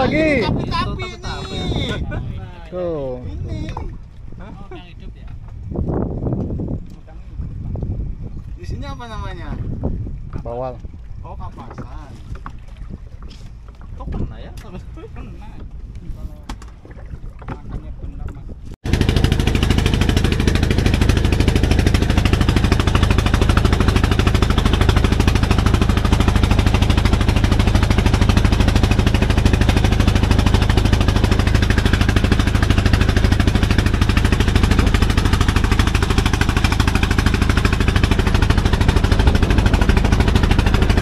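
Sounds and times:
boat engine knocking: 16.5s - 41.0s.

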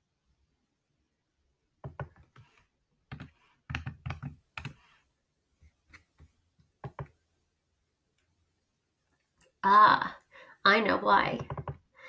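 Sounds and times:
typing on keyboard: 3.1s - 4.8s, 11.4s - 11.8s.

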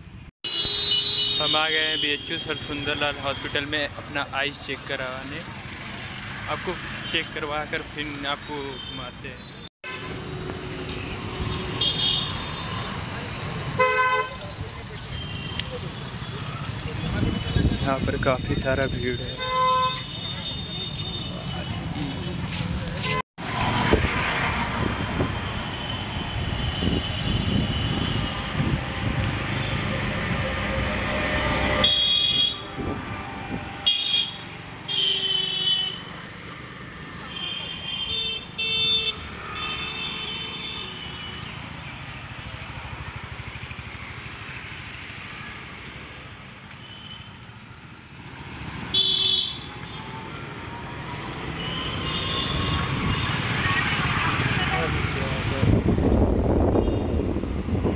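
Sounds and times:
road traffic noise: 0.0s - 57.9s
vehicle horns tooting: 0.5s - 3.7s, 11.8s - 12.9s, 13.8s - 14.4s, 17.0s - 21.8s, 30.8s - 33.0s, 33.7s - 36.2s, 37.2s - 41.6s, 48.9s - 50.1s, 51.5s - 54.9s, 56.7s - 57.3s.

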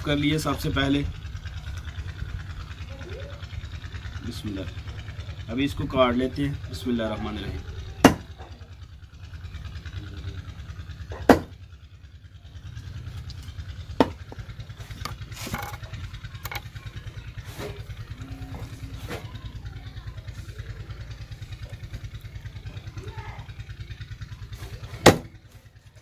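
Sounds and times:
low pulsing engine throb: 0.0s - 26.0s
cleaver chopping fish on wood: 8.0s - 8.3s, 11.2s - 11.5s, 25.0s - 25.3s.

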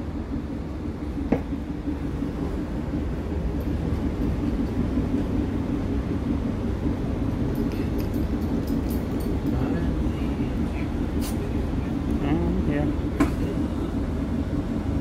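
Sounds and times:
train carriage rumble: 0.0s - 15.0s.

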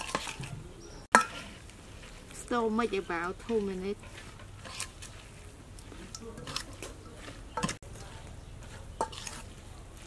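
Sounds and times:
clinks against metal bowl: 1.1s - 1.4s
wet squishing of hand mixing: 1.1s - 10.0s.

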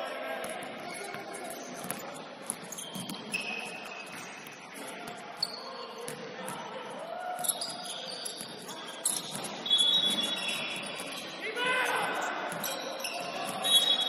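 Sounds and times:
sneakers squeaking: 0.1s - 14.0s.

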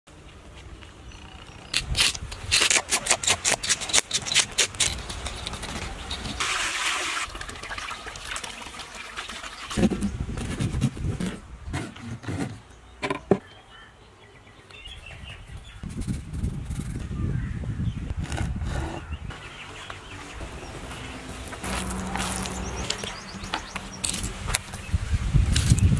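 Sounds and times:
water splashing in a basin: 6.2s - 10.1s
water rushing: 6.3s - 9.9s.

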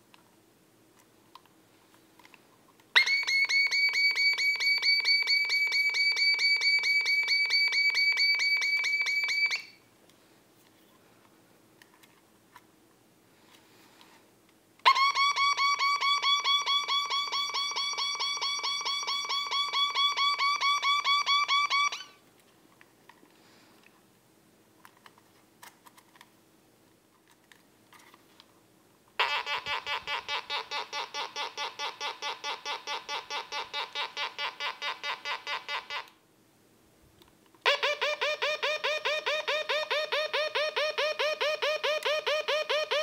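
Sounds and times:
toy ray gun pulsing beeps: 3.0s - 9.8s, 14.9s - 22.1s.

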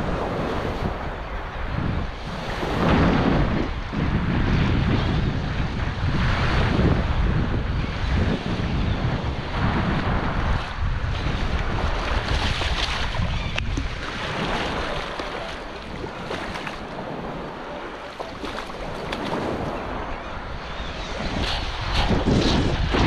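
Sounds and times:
wind buffeting microphone: 0.0s - 23.0s
small waves lapping: 11.4s - 20.3s
fish splashing in shallow water: 11.7s - 20.0s.

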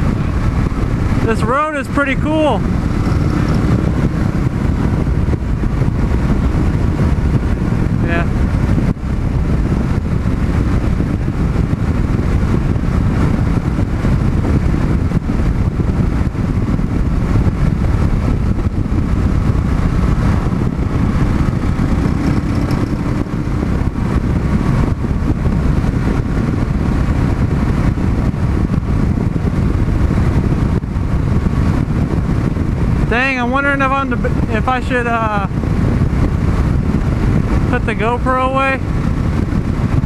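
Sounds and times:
motorcycle engine running: 0.0s - 40.0s
wind rushing over microphone: 0.0s - 40.0s.

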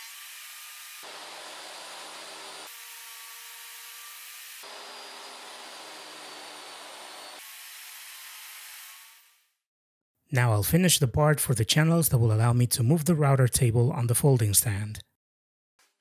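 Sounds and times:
table saw cutting plywood: 0.0s - 9.4s.

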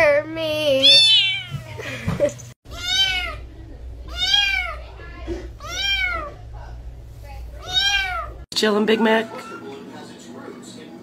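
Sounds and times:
kitten meowing: 2.7s - 3.4s, 7.6s - 8.4s.

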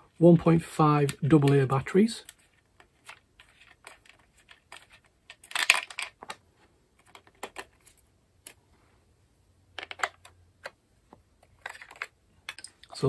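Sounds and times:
hard plastic clicks and clatter: 3.8s - 6.4s.

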